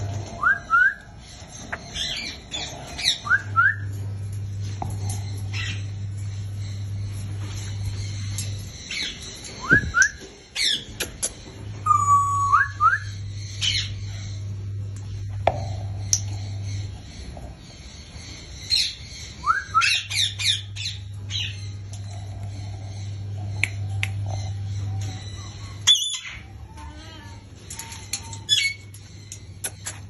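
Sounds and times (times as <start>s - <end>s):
low hum: 0.0s - 30.0s
parrots whistling and squawking: 18.7s - 21.6s, 25.0s - 26.5s, 27.7s - 28.9s.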